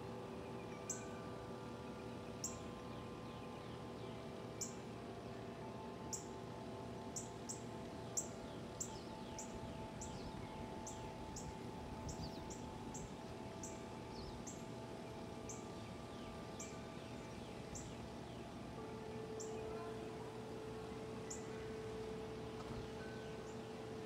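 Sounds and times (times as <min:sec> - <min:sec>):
tubular wind chimes ringing: 0:00.0 - 0:24.0
bird chirping: 0:07.1 - 0:20.1.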